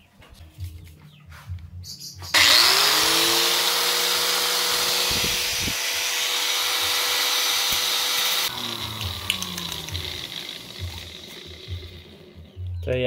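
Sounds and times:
angle grinder whining: 2.4s - 12.7s.

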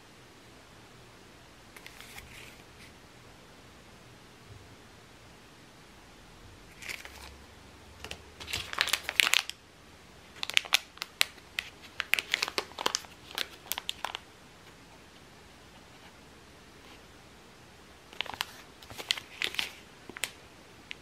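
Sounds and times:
plastic packaging crinkling: 6.7s - 7.4s, 8.0s - 9.6s, 10.3s - 14.2s, 18.1s - 20.4s.

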